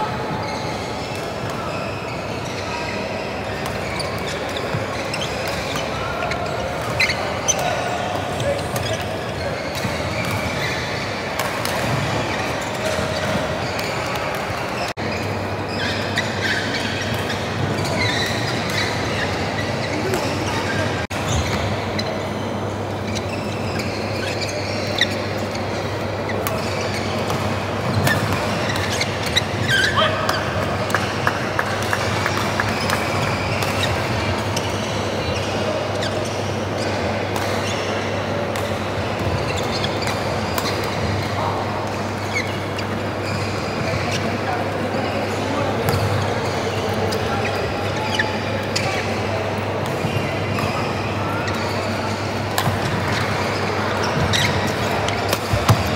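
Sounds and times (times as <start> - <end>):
low hum of hall: 0.0 - 55.9
murmur of voices: 0.0 - 55.9
shoe squeaks on court floor: 0.0 - 55.9
racket hitting shuttlecock: 52.4 - 53.2, 54.1 - 55.9.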